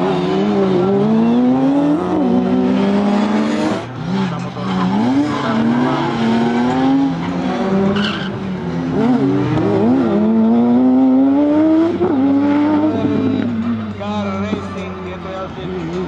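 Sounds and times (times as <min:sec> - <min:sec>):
car engine revving high: 0:00.0 - 0:14.0
tyre squeal: 0:05.3 - 0:08.4.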